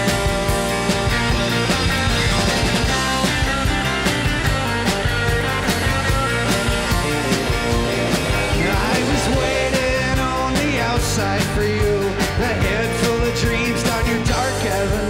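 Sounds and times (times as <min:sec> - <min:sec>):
rock band playing: 0:00.0 - 0:15.0
man singing: 0:07.4 - 0:15.0.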